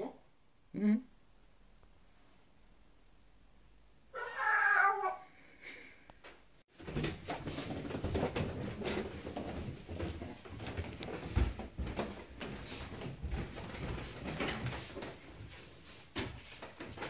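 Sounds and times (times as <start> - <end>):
meow-like cry: 4.2 - 5.3
rustling and knocks of handling: 6.2 - 17.0.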